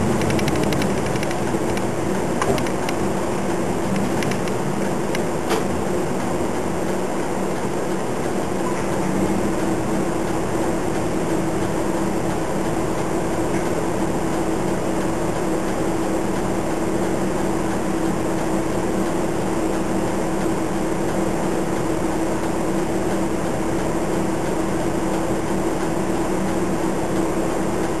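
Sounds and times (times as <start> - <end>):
bus engine idling: 0.0 - 28.0.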